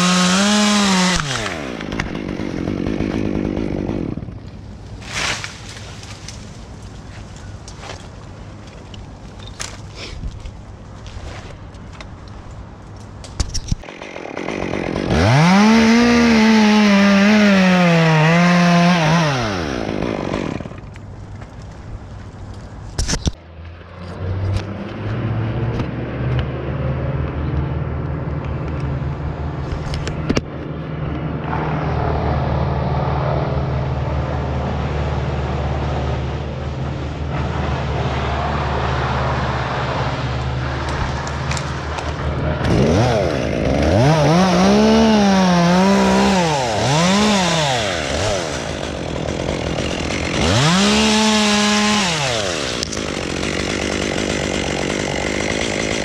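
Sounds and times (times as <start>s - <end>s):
chainsaw idling and revving: 0.0s - 4.5s, 13.8s - 20.9s, 31.4s - 56.0s.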